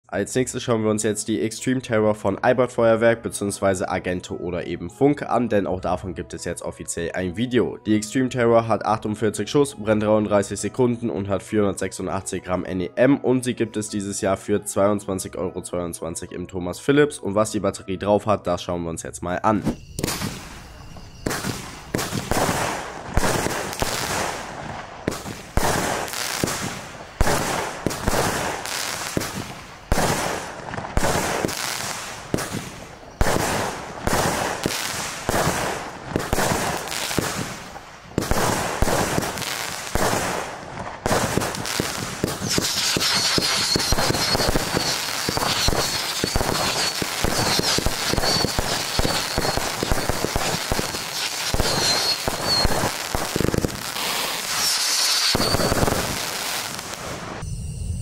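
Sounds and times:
firework launch thumps: 19.6s - 20.5s, 21.2s - 24.4s
firework bursts banging: 19.6s - 57.4s.

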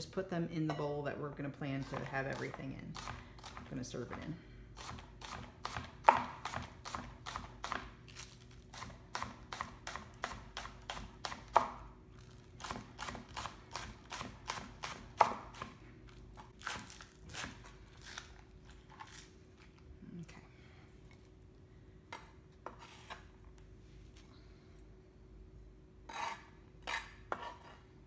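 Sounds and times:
knife chopping on plastic board: 4.8s - 8.0s, 8.8s - 11.9s, 12.6s - 15.8s.

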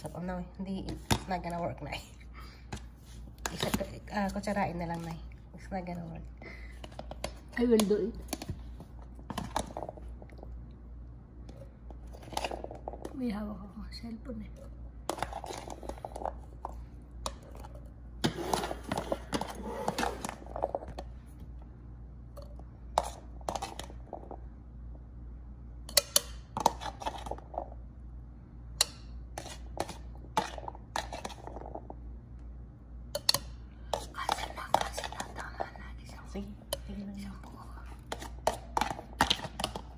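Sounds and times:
steady low hum: 0.0s - 39.9s
spoon scraping plastic: 11.5s - 13.1s, 14.5s - 21.0s, 22.9s - 24.4s, 26.5s - 27.7s, 29.3s - 31.9s, 33.9s - 35.8s, 36.7s - 39.9s.

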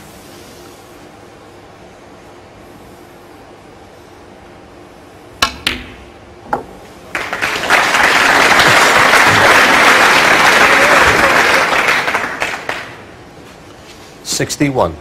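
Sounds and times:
cue tip striking ball: 5.4s - 6.9s
audience applause: 7.1s - 13.1s.

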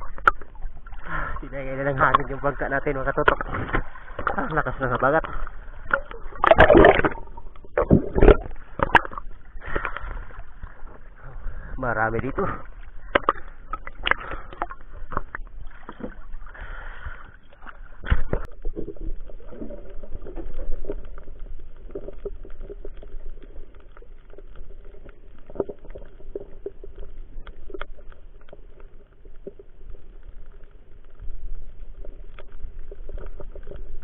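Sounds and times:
muffled underwater sound: 0.0s - 34.0s
sea water splashing: 0.0s - 34.0s
small clicks and ticks: 19.9s - 34.0s.

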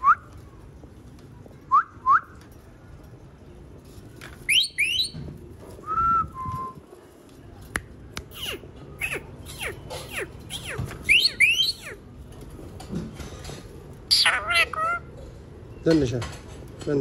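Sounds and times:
parrot whistling: 4.5s - 5.2s, 8.3s - 12.0s, 14.1s - 15.0s.

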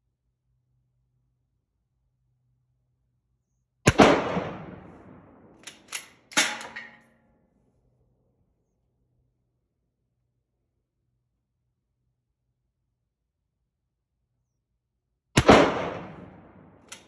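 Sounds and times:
rifle shot echoing: 3.9s - 6.8s, 15.4s - 17.0s
rifle bolt clicks and clack: 5.6s - 7.1s, 16.8s - 17.0s.

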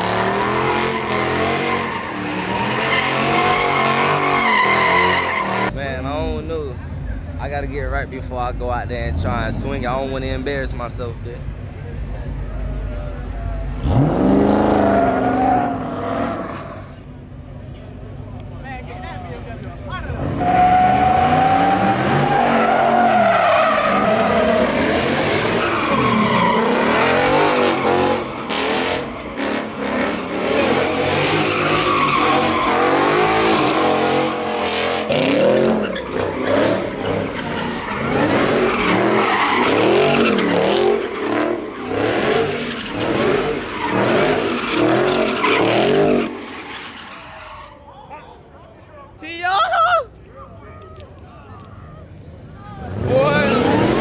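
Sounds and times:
tyres squealing on pavement: 0.0s - 5.8s, 13.8s - 17.0s, 20.1s - 48.3s
car engine revving: 0.0s - 6.7s, 13.6s - 17.1s, 19.9s - 47.2s, 52.8s - 54.0s.

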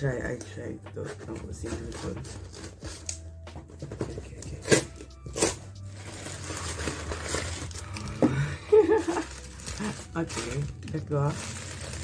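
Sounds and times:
plastic ripping: 4.4s - 12.0s
plastic packaging crinkling: 4.6s - 12.0s.

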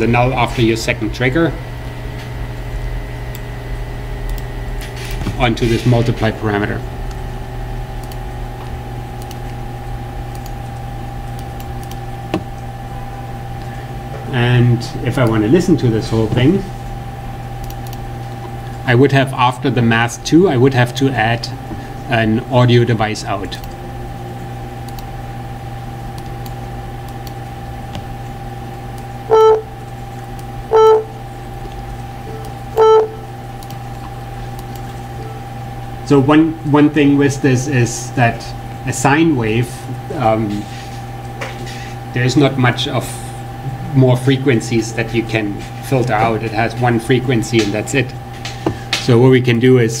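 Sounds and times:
machine hum with held tones: 0.0s - 50.0s
computer keyboard typing: 8.0s - 8.2s, 9.2s - 9.6s, 10.3s - 12.4s, 17.6s - 18.0s
synthesizer beeps: 29.3s - 29.7s, 30.7s - 31.2s, 32.3s - 33.3s.

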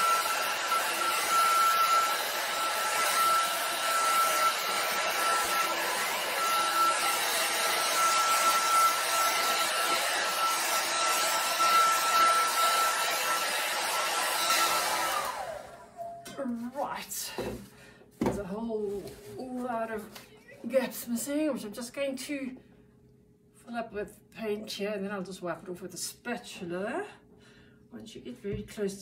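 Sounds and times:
hair dryer running: 0.0s - 16.1s.

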